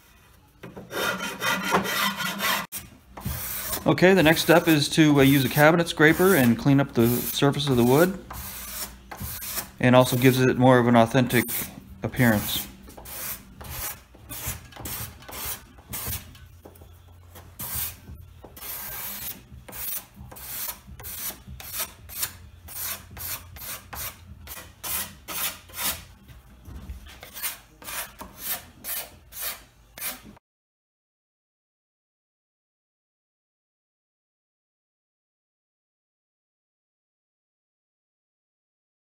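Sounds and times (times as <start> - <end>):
cabinet scraper scraping wood: 0.7 - 10.5, 11.3 - 26.1, 27.0 - 30.4.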